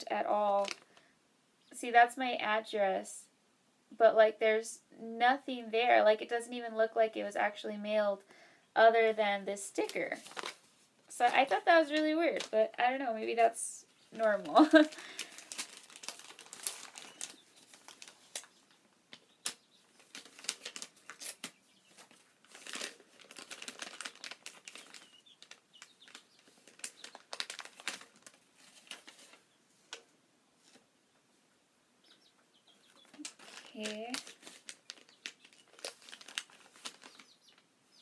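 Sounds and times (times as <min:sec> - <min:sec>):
paper crinkling and rustling: 0:00.6 - 0:00.9, 0:09.8 - 0:12.6, 0:14.1 - 0:30.8, 0:33.0 - 0:37.6.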